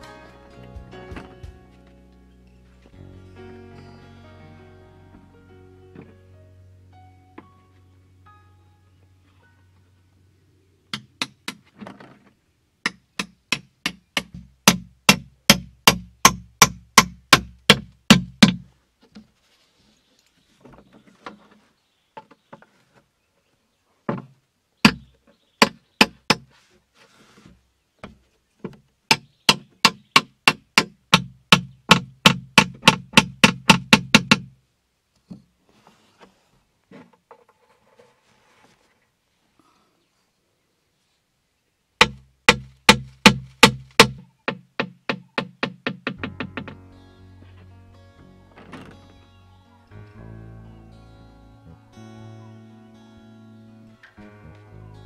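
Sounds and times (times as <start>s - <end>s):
hammer striking nails into plastic: 12.9s - 18.6s, 29.1s - 34.5s, 42.0s - 46.8s.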